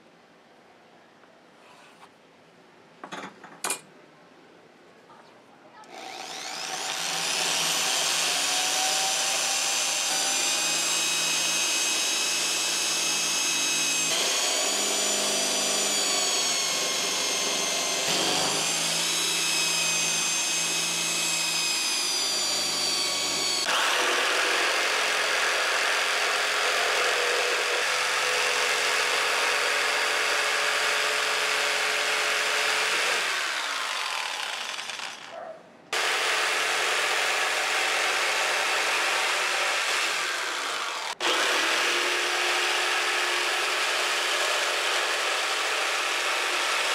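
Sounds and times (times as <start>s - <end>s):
electric drill boring wood: 5.9s - 35.3s, 36.0s - 46.9s
jigsaw cutting board: 5.9s - 35.4s, 36.0s - 46.9s.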